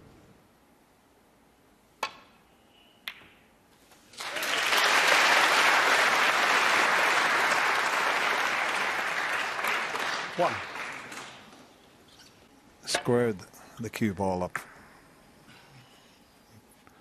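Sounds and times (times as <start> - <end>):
audience applause: 4.2 - 11.6.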